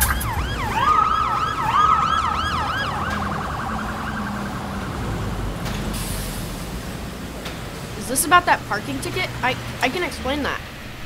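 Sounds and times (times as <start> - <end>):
police siren yelping: 0.0 - 5.9.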